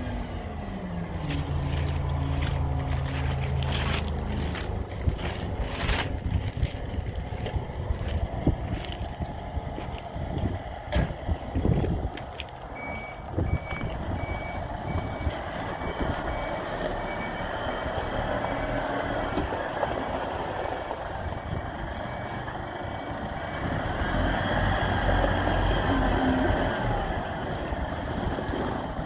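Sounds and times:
reversing alarm beeping: 0:12.8 - 0:19.5, 0:20.6 - 0:24.2.

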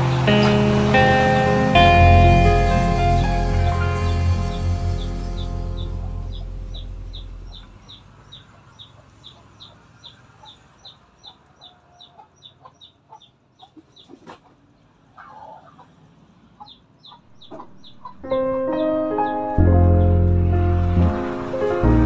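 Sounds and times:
chicks peeping: 0:01.8 - 0:14.6, 0:16.6 - 0:20.5
chickens clucking: 0:03.5 - 0:18.9.

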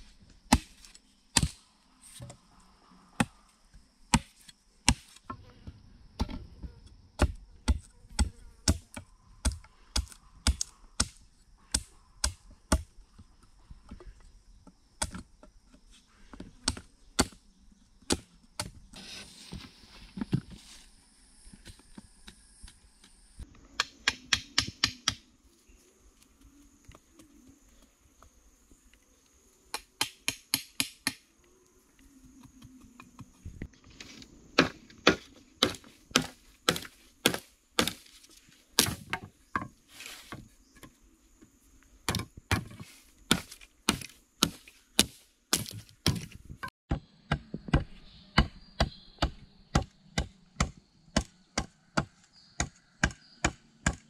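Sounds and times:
machete chopping bamboo: 0:00.5 - 0:01.6, 0:04.1 - 0:05.2, 0:07.2 - 0:12.9, 0:15.0 - 0:15.3, 0:16.6 - 0:17.4, 0:18.1 - 0:18.8, 0:23.8 - 0:25.2, 0:29.7 - 0:31.3, 0:34.6 - 0:38.2, 0:38.8 - 0:39.7, 0:42.1 - 0:54.0.

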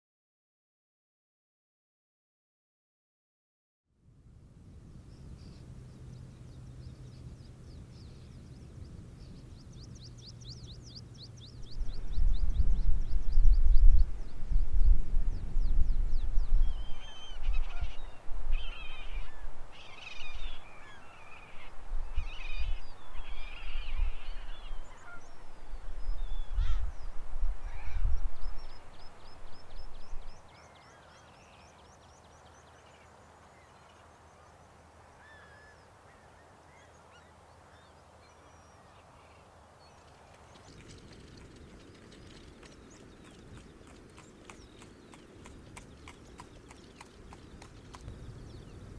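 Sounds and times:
wind rumble on microphone: 0:04.0 - 0:30.6, 0:39.8 - 0:48.9.

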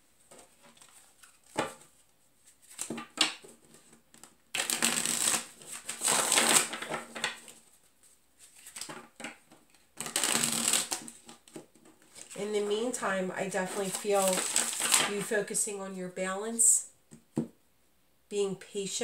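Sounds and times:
cards shuffling: 0:00.6 - 0:15.3.

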